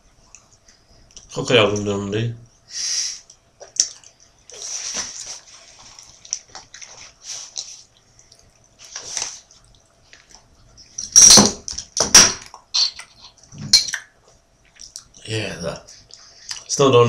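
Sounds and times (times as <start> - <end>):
breathing: 2.7 - 3.3, 15.9 - 16.7
wet mouth clicks: 3.6 - 4.2
person chewing: 3.6 - 11.0, 12.6 - 15.2.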